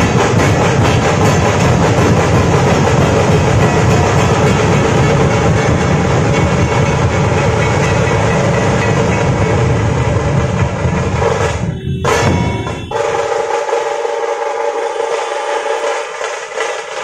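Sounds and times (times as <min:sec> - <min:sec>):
dhol and tasha drums beating: 0:00.0 - 0:17.0.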